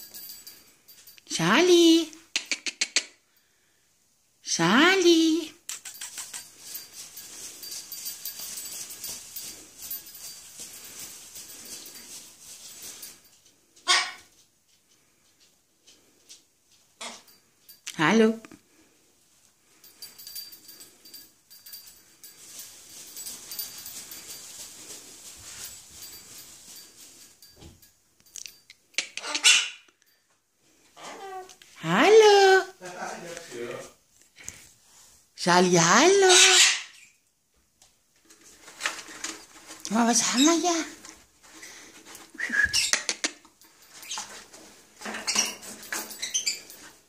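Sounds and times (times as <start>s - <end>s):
scratchy rustling: 5.7s - 13.3s, 20.7s - 27.5s.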